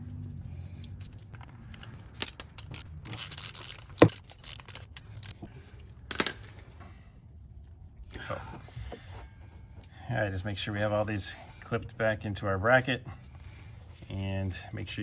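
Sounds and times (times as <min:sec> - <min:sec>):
ratchet clicking on bolt: 0:02.2 - 0:05.4.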